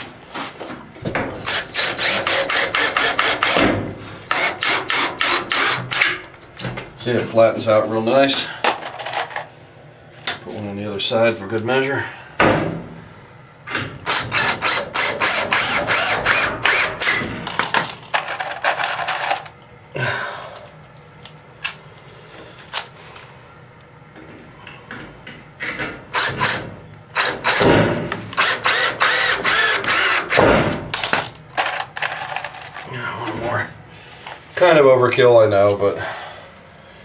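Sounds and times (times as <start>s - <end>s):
cordless drill driving screws: 1.5s - 3.6s, 4.2s - 6.1s, 14.0s - 17.2s, 26.2s - 26.6s, 27.2s - 27.6s, 28.4s - 30.4s.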